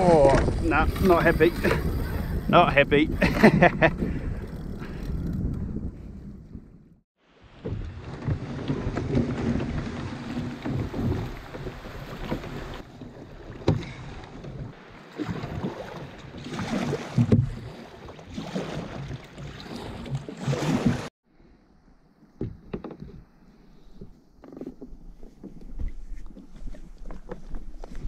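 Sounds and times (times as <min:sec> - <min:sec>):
water sloshing and splashing: 0:00.0 - 0:05.4, 0:07.3 - 0:21.1
wind buffeting microphone: 0:00.0 - 0:07.0.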